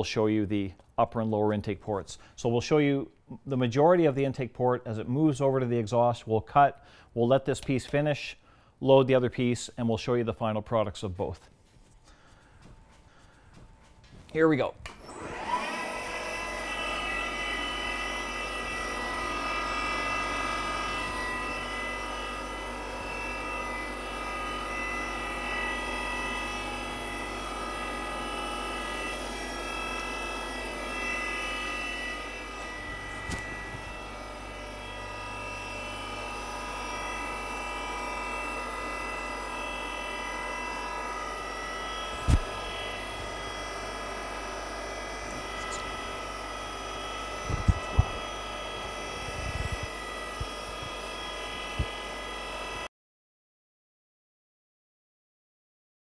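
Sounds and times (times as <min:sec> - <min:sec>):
milling machine spindle whine: 0:14.8 - 0:52.9.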